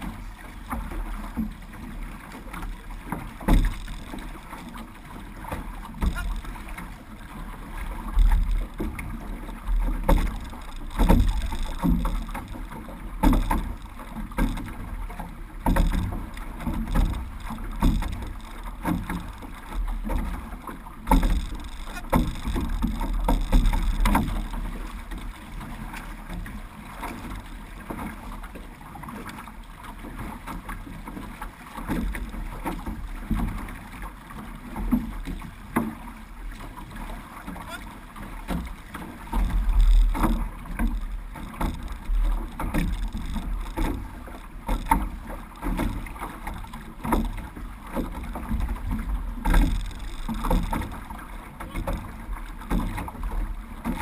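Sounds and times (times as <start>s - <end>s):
paddles splashing: 0.0s - 54.0s
water rushing past hull: 0.0s - 54.0s
low rumble: 6.0s - 25.6s.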